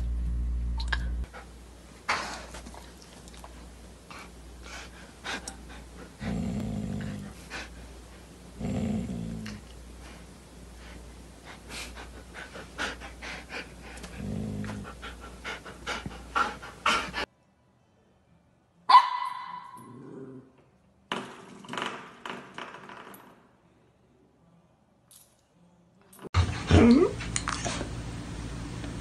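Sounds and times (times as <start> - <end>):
dog panting: 4.1 - 6.3, 7.0 - 8.2, 10.8 - 17.3
dog low grumbling: 6.1 - 7.7, 8.6 - 9.7, 13.5 - 17.2, 26.4 - 27.7.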